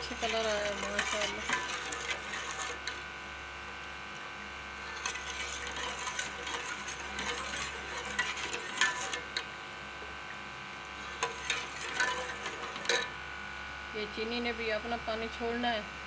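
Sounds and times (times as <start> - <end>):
metal ladle scraping metal pot: 0.0 - 3.1, 4.8 - 9.5, 11.0 - 13.2
thick sauce being stirred: 0.0 - 3.1, 4.8 - 9.5, 11.0 - 13.1.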